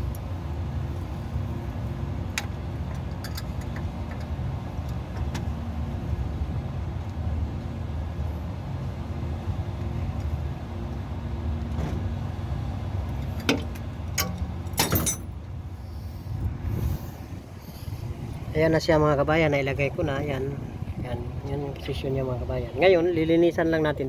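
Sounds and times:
low engine hum: 0.0s - 24.0s
sharp metallic clinks: 14.2s - 15.3s.

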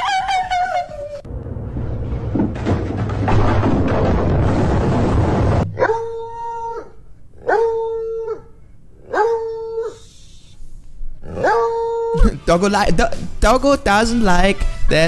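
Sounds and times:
loud rushing noise: 1.3s - 6.0s
dog howling: 5.8s - 10.1s, 11.2s - 12.2s.

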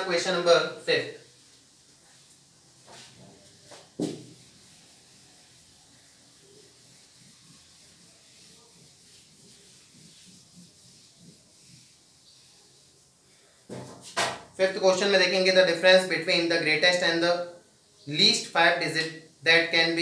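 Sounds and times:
eraser wiping whiteboard: 1.3s - 14.2s.

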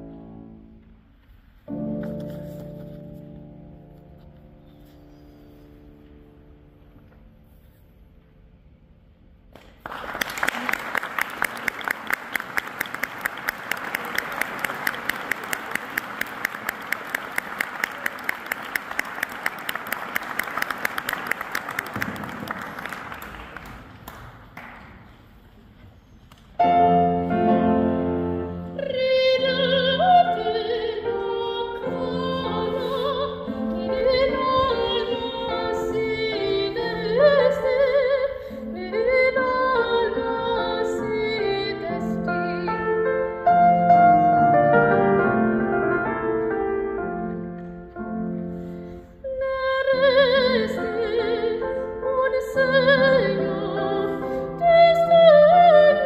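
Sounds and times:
piano: 0.0s - 56.0s
audience applause: 9.6s - 25.3s
soprano singing with vibrato: 28.6s - 43.0s, 49.2s - 56.0s.

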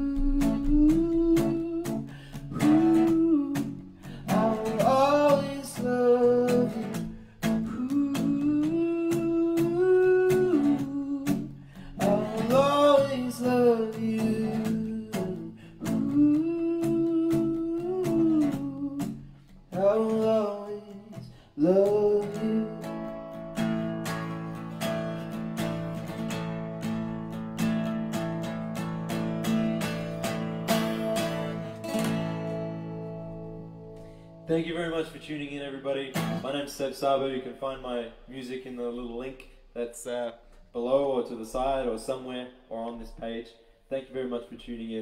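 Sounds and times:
man singing: 0.0s - 23.4s
acoustic guitar strumming: 0.0s - 36.9s.

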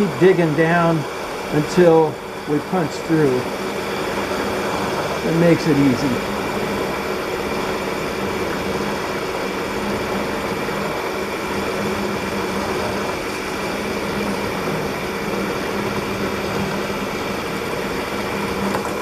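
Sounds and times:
milling machine cutting steel: 0.0s - 19.0s
steady machine hum: 0.0s - 19.0s.

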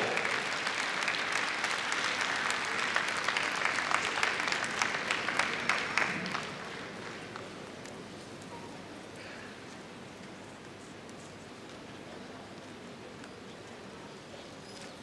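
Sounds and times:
large crowd applauding: 0.0s - 7.8s.

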